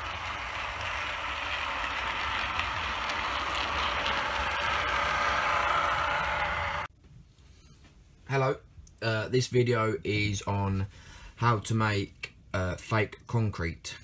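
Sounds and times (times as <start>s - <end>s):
model train mechanical whir: 0.0s - 6.9s.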